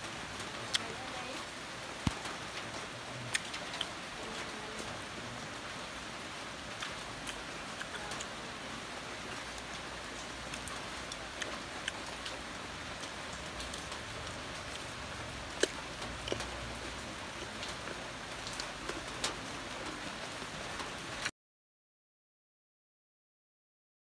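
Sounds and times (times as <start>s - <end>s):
biting and chewing fruit: 3.3s - 4.0s, 6.7s - 8.4s, 10.4s - 12.4s, 15.5s - 19.2s.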